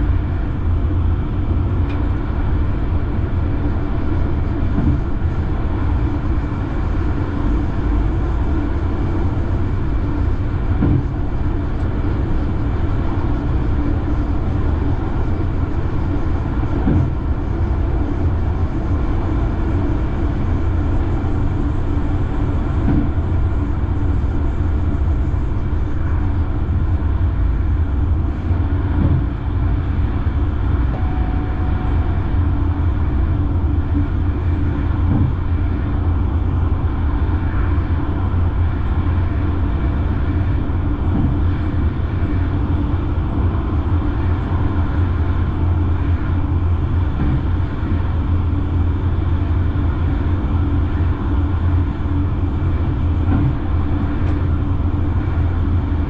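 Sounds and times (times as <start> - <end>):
train rumbling along track: 0.0 - 56.0.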